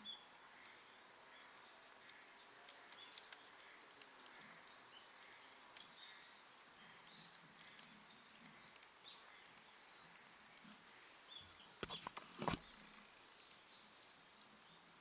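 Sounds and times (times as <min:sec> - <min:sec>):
steady quiet hiss: 0:00.0 - 0:15.0
soft ticks: 0:00.3 - 0:10.9, 0:14.3 - 0:14.6.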